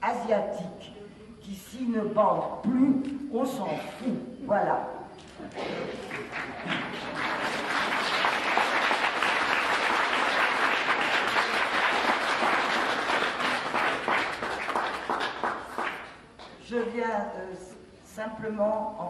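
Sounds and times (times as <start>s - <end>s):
audience applauding: 5.9s - 16.2s.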